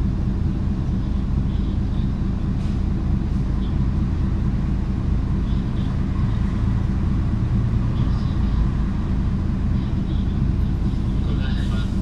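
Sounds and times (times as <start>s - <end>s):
bus diesel engine rumbling: 0.0s - 12.0s.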